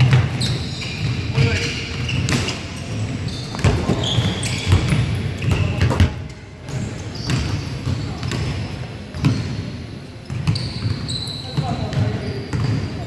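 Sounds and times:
sneakers squeaking on floor: 0.0 - 13.0
players' voices: 1.2 - 2.2.

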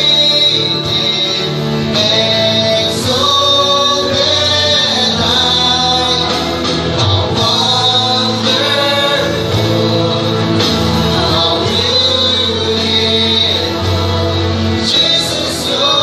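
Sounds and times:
bass guitar: 0.0 - 16.0
electric guitars: 0.0 - 16.0
voices singing together: 0.0 - 16.0.

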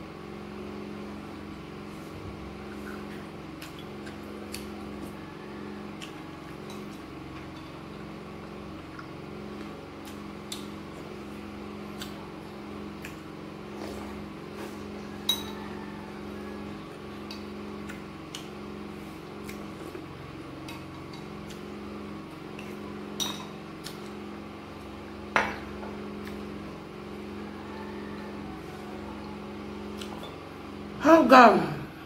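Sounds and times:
steady low hum: 0.0 - 32.0
metal spoon clinking on glass bowl: 15.3 - 15.6.

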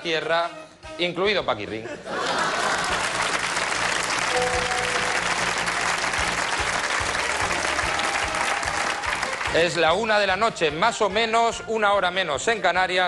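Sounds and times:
music playing: 0.0 - 13.0
studio audience applauding: 2.2 - 10.7.

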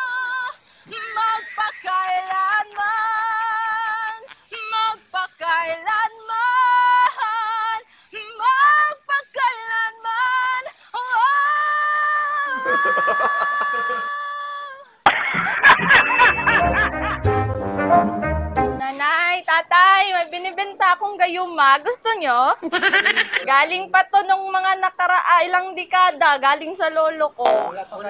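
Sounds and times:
person singing unaccompanied: 0.0 - 14.9
loud background music: 16.6 - 18.8.

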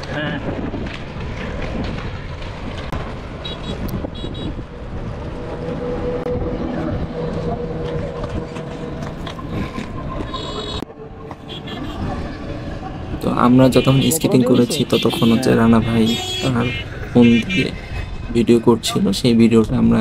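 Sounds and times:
wind on microphone: 0.0 - 10.8
passing motor hum: 0.6 - 18.4
short high horn toots: 13.7 - 17.7.

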